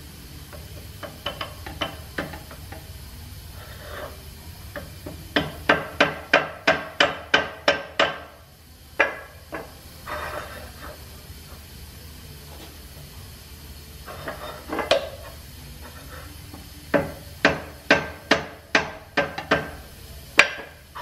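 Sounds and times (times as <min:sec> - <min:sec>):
hammer striking metal driver: 0:00.5 - 0:02.9, 0:04.8 - 0:08.4, 0:16.9 - 0:19.8, 0:20.4 - 0:20.8.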